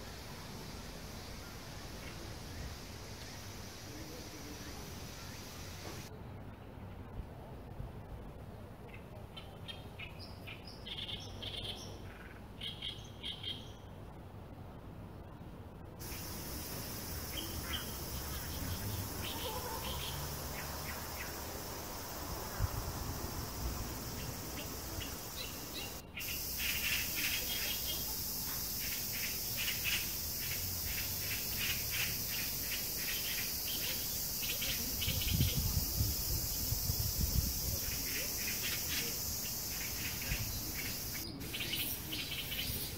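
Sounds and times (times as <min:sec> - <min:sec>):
high insect drone: 0:16.0 - 0:42.9
rapid chirps: 0:16.0 - 0:42.9
bird chirps: 0:24.1 - 0:35.5.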